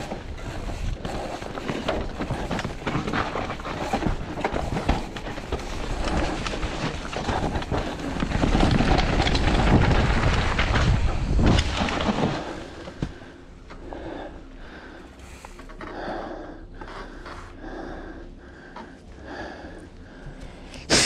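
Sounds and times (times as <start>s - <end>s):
bike rattling and knocking: 0.0s - 13.3s
bike tyres rumbling over dirt: 0.0s - 15.5s.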